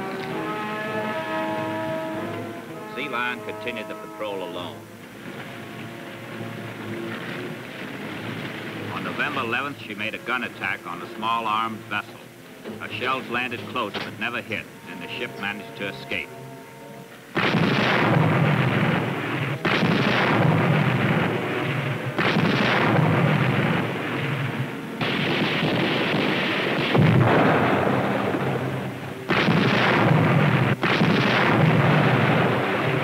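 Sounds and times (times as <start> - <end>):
deck gun firing: 17.4 - 28.4, 29.3 - 33.0.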